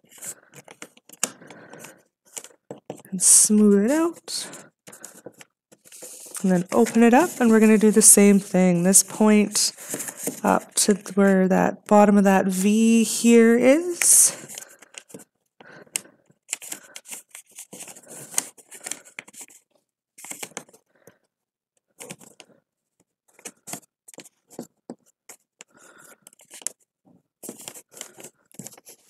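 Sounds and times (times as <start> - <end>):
fingertips smoothing paper creases: 0.0 - 10.8
paper being folded by hand: 0.0 - 11.2, 16.4 - 20.8, 23.3 - 26.8.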